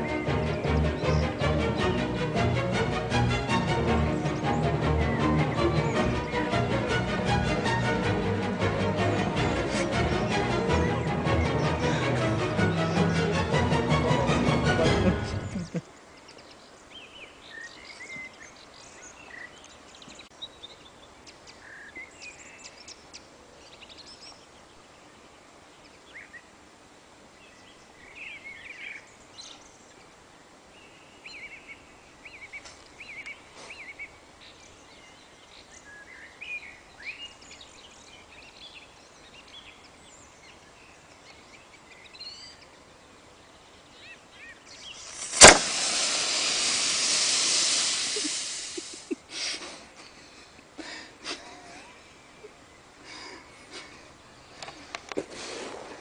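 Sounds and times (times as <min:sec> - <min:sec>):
birds chirping: 0:00.0 - 0:24.9, 0:27.5 - 0:49.3
rocket motor hissing: 0:45.0 - 0:49.2
rocket motor pop: 0:45.1 - 0:49.0.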